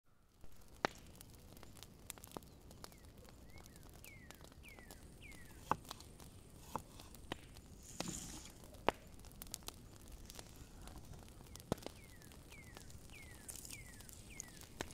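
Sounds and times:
bird chirping: 2.4s - 5.9s, 11.4s - 14.9s.

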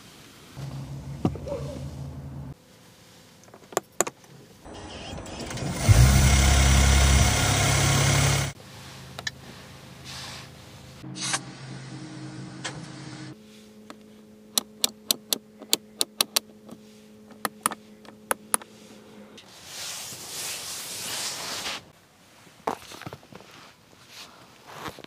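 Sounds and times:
steady hum: 0.6s - 2.6s
car buttons clicking: 14.6s - 16.5s.

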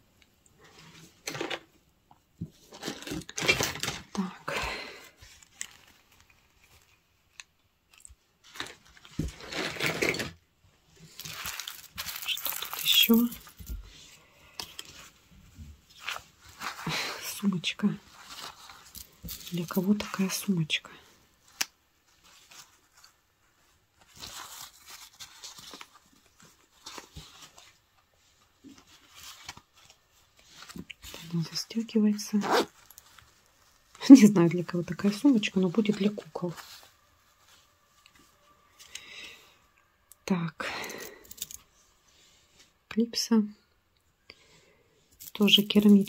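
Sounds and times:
packing material rustling and crunching: 2.6s - 20.3s, 21.4s - 38.9s, 45.1s - 46.0s
zipper opening: 32.3s - 33.0s.

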